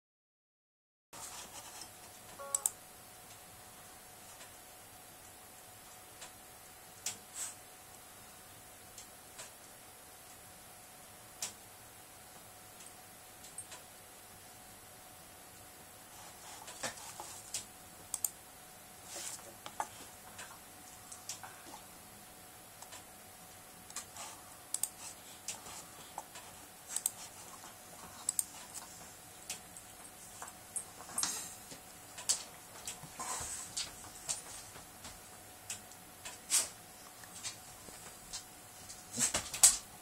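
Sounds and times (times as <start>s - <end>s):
small clicks: 17.5s - 18.4s, 24.7s - 25.6s
soft rustles: 19.0s - 20.3s.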